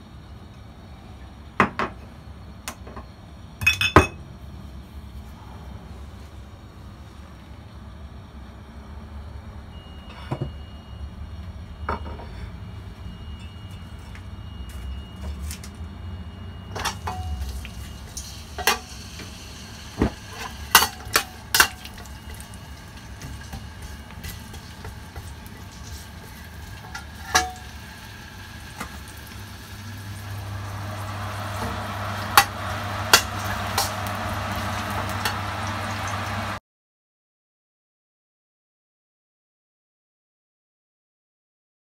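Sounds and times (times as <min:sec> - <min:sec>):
sizzling in hot oil: 0:16.8 - 0:36.6.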